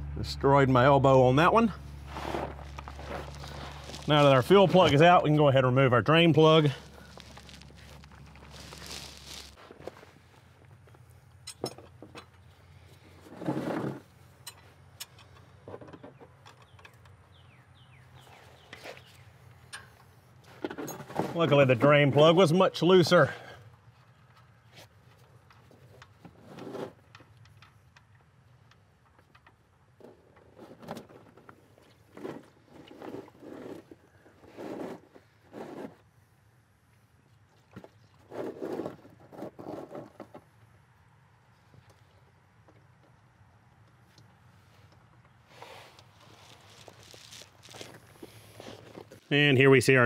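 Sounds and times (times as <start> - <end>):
oil splashing: 6.6 - 9.6.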